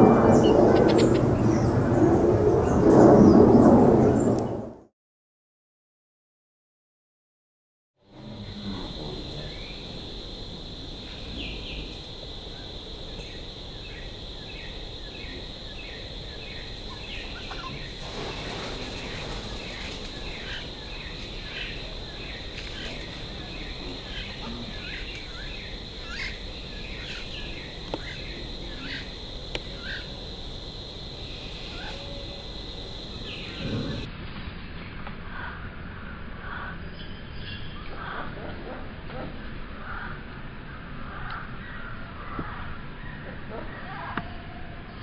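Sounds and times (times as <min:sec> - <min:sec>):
high-pitched drone: 0:00.0 - 0:03.9.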